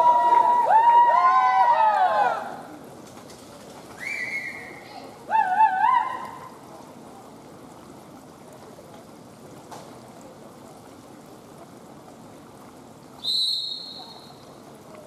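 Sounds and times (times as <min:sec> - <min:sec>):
indoor pool hall hiss: 0:00.0 - 0:15.0
high whistle tone: 0:13.2 - 0:14.3.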